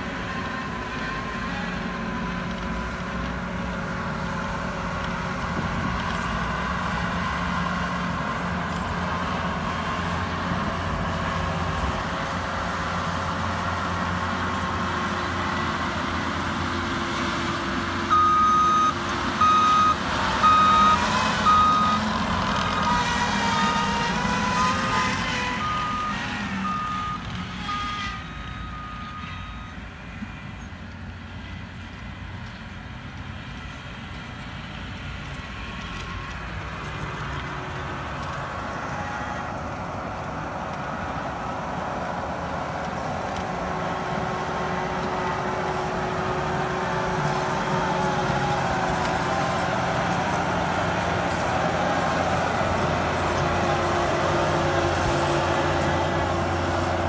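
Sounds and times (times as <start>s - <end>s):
loader engine under load: 0.0s - 57.0s
backup alarm beeping: 18.1s - 22.0s.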